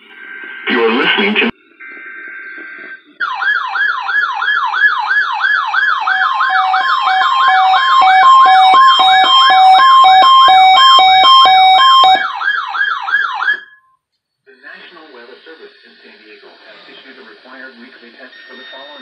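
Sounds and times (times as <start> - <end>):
warbling siren alarm: 1.9 - 13.8.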